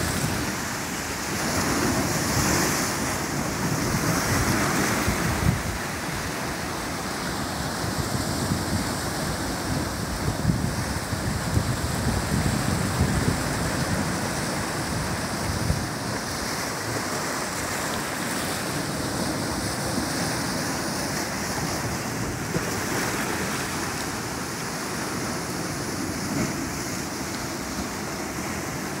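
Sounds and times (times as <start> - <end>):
surf washing over rocks: 0.0 - 29.0.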